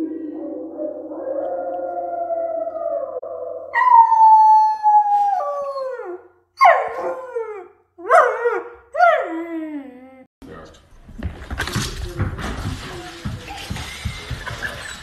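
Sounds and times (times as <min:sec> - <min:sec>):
puppy howling: 0:00.0 - 0:10.3
recorded wolf howl: 0:00.0 - 0:10.3.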